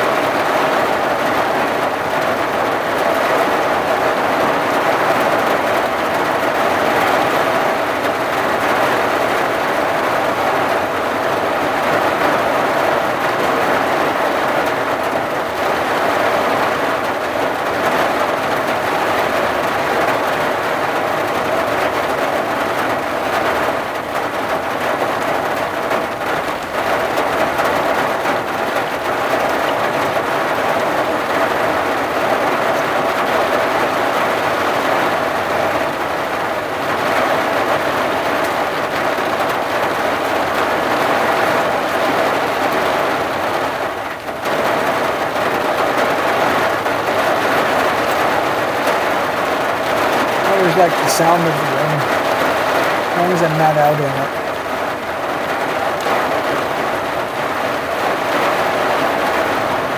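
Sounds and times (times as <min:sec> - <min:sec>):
rain on vehicle roof: 0:00.0 - 0:59.9.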